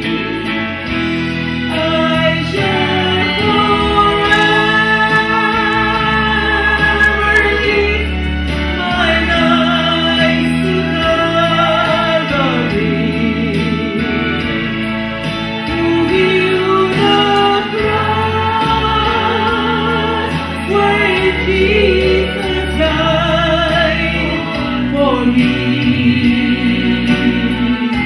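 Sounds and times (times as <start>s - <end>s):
instrumental accompaniment: 2.0s - 11.4s
woman singing with vibrato: 2.0s - 11.8s.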